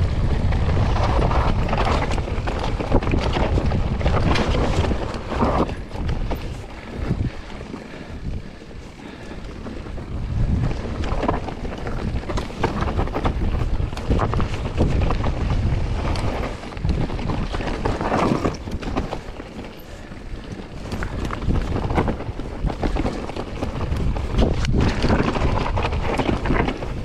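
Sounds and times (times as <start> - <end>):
bike rattling and clicking: 0.0 - 27.0
bike tyres rumbling over rough ground: 0.0 - 27.0
wind rushing over microphone: 0.0 - 27.0.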